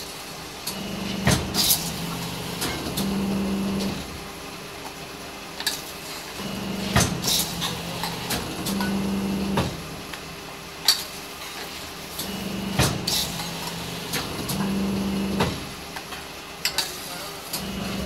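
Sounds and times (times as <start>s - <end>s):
hydraulic press humming: 6.4s - 9.9s, 12.2s - 15.8s, 17.5s - 18.0s.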